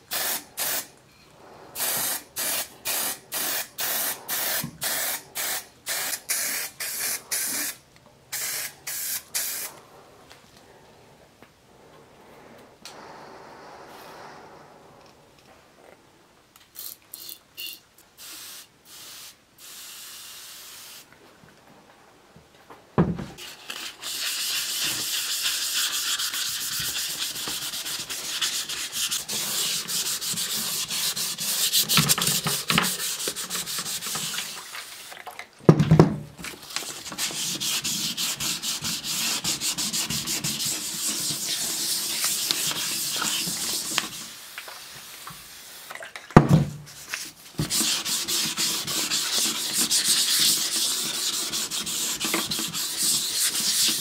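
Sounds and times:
sandpaper sanding metal: 23.4 - 34.6, 37.0 - 44.4, 47.6 - 54.0.

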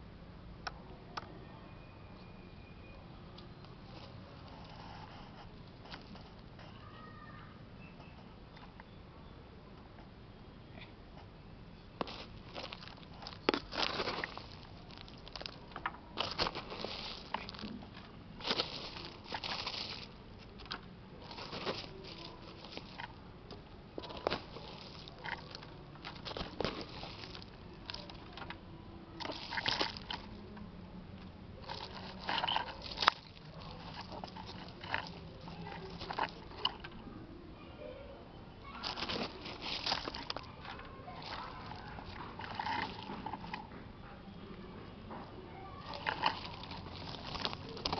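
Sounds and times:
fingers scraping through soil: 12.0 - 28.3, 29.2 - 30.5, 31.6 - 36.8, 38.8 - 43.7, 45.8 - 47.9.

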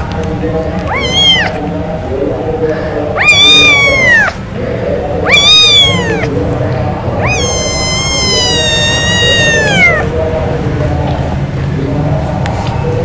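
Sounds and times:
kittens meowing: 0.8 - 1.6, 3.2 - 4.4, 5.2 - 6.4, 7.1 - 10.1.

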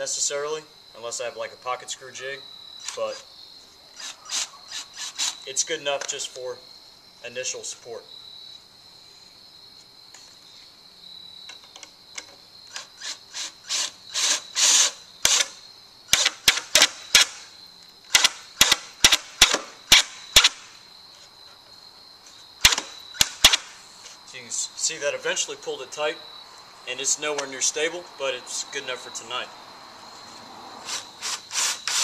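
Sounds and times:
cordless drill driving screw: 4.0 - 5.4, 12.7 - 15.5, 30.9 - 32.0.

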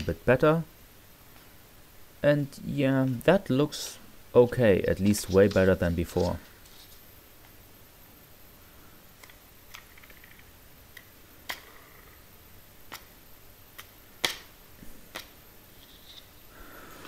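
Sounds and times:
small plastic parts clicking: 9.2 - 12.1, 13.7 - 14.5.

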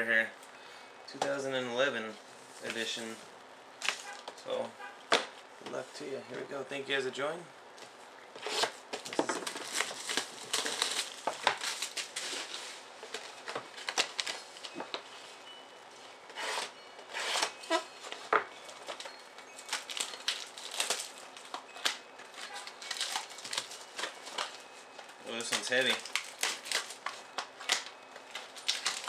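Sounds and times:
shrink wrap tearing and crinkling: 8.4 - 15.0, 18.8 - 24.7, 25.3 - 29.0.

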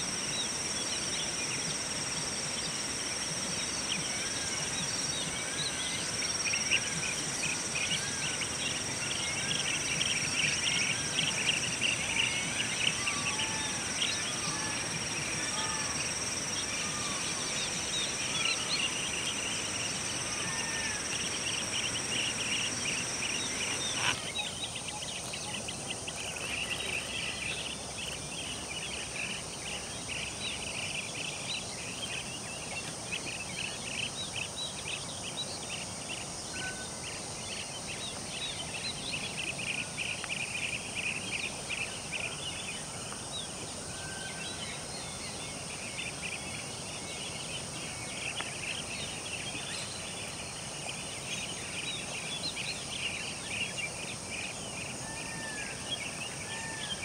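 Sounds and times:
rising-and-falling bird calls: 3.9 - 25.6.

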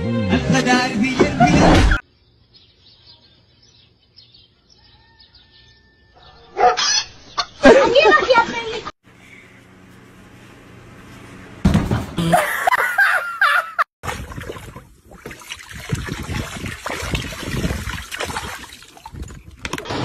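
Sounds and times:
water splashing and spraying: 14.0 - 19.6.

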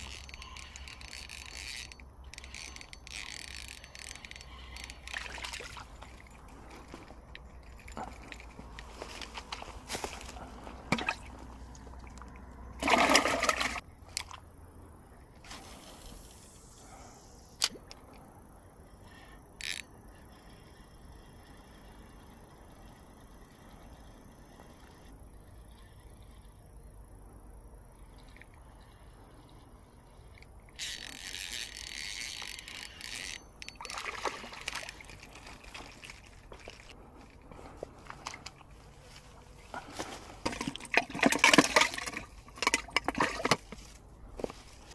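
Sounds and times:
fishing rod and line clicks: 0.0 - 9.6, 14.1 - 14.4, 19.4 - 20.5, 30.2 - 37.4
fish splashing into water: 12.3 - 13.8, 33.8 - 36.8.

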